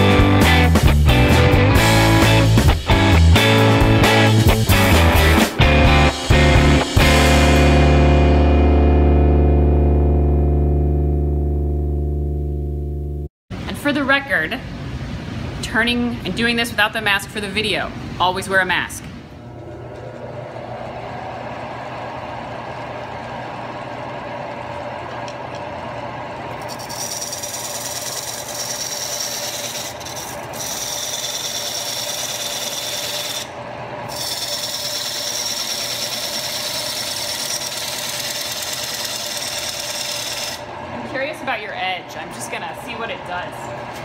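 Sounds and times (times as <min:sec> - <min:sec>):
wood lathe humming: 0:20.2 - 0:41.1
turning tool cutting wood: 0:26.5 - 0:40.8.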